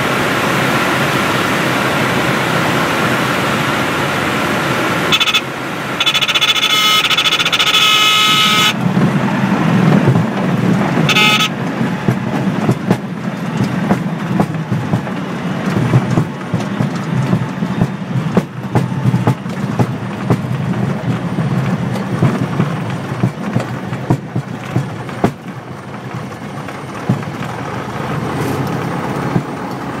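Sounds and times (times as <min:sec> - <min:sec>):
aircraft engine idling: 0:00.0 - 0:30.0
high stall-warning tone: 0:05.0 - 0:09.0, 0:11.0 - 0:12.2
knocks and rattles: 0:08.7 - 0:30.0
wheels rolling over bumpy grass: 0:08.8 - 0:30.0.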